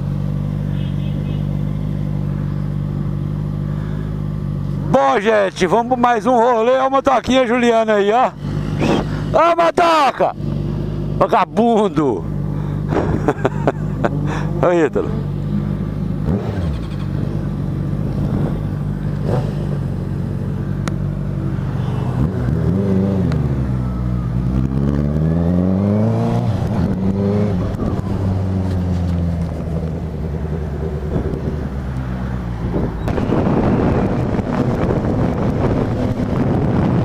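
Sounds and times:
motorcycle engine revving: 8.2 - 9.4, 10.4 - 37.0.

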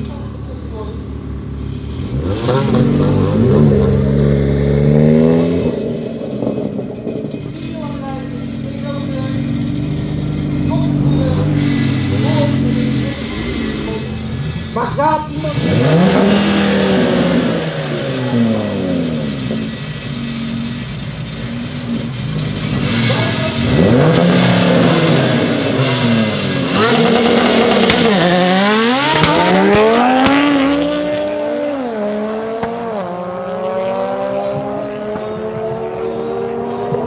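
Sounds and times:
cars accelerating hard: 0.0 - 7.6, 8.5 - 37.0
car engines revving: 0.0 - 37.0.

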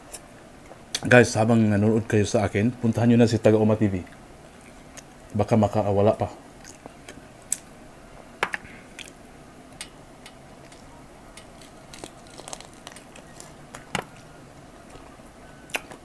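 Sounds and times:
crispy chicken crunching: 10.6 - 14.3
wet eating clicks: 15.7 - 16.0.

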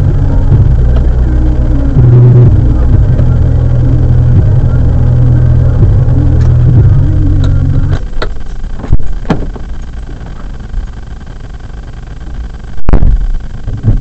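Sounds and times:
car engine rumble: 0.0 - 14.0
loud thumps: 7.8 - 10.4, 12.8 - 14.0.

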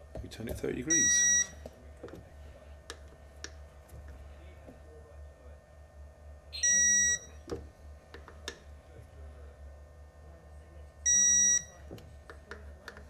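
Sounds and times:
high electronic beep: 6.6 - 7.3.

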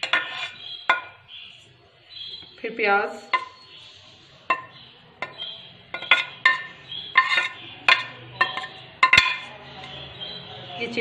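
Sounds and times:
spoon clinking on plate: 4.5 - 10.0.

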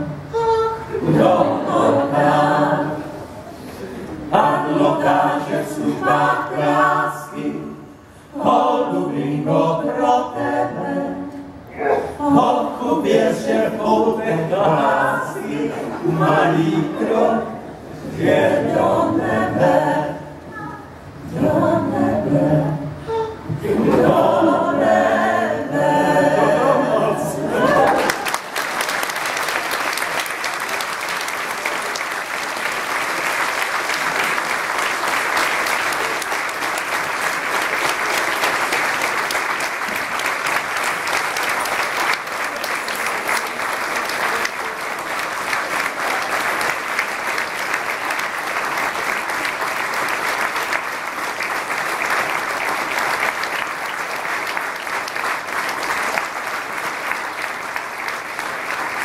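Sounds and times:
audience applauding: 26.8 - 59.0.

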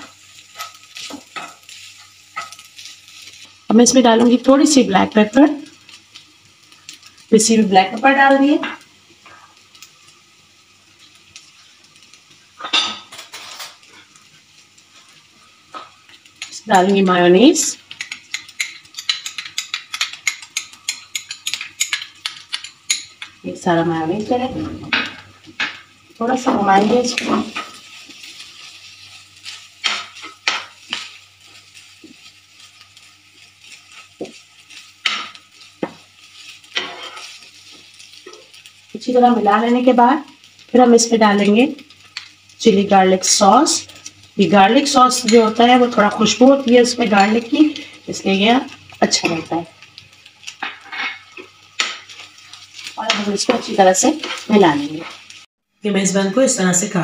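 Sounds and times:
utensils clinking on cookware: 12.6 - 13.9, 17.9 - 23.4, 36.7 - 37.3, 50.6 - 55.2
metal utensil scraping a frying pan: 12.6 - 14.1, 36.4 - 38.6, 50.6 - 55.4.

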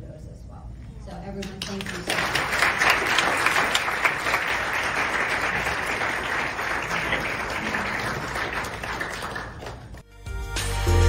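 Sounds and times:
audience applauding: 1.6 - 10.0.

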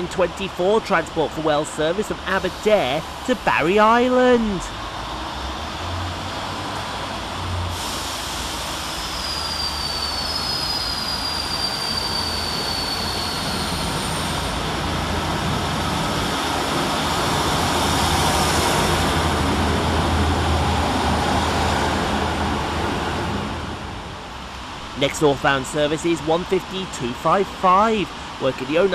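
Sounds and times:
train diesel engines droning: 0.0 - 28.9
thin high squeal: 9.0 - 14.4.

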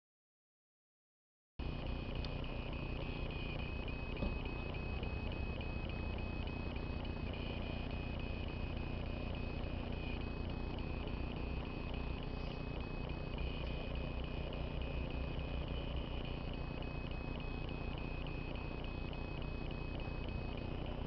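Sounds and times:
steady high-pitched tone: 1.6 - 21.0.

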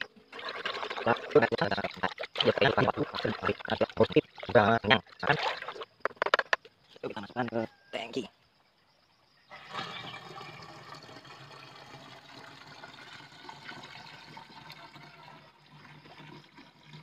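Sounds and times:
liquid splashing pour: 0.3 - 5.9, 9.5 - 17.0.

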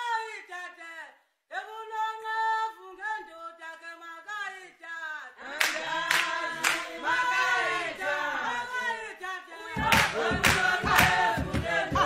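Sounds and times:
lower voices singing: 5.3 - 12.0
sharp hand claps: 5.6 - 7.0, 9.8 - 12.0.

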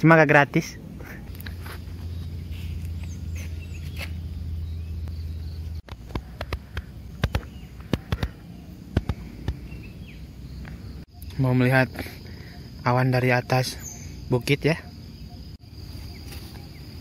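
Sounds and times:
sharp clicks: 5.8 - 9.6.

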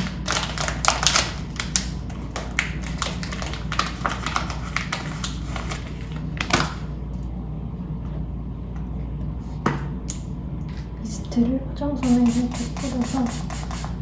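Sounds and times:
package crinkling: 0.0 - 6.8
steady low hum: 0.0 - 14.0.

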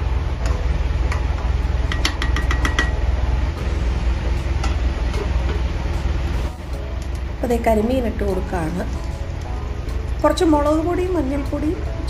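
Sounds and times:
steady low rumble: 0.0 - 12.0
spoon tapping on pan rim: 1.9 - 3.0.

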